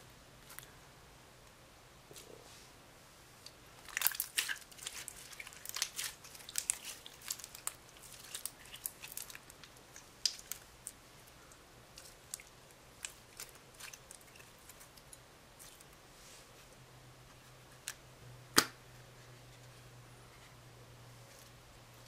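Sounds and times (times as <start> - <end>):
slime crackling and popping: 3.8 - 11.0.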